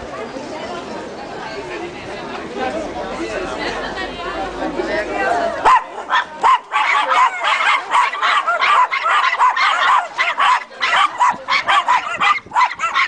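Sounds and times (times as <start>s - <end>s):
small dogs yapping: 5.7s - 13.0s.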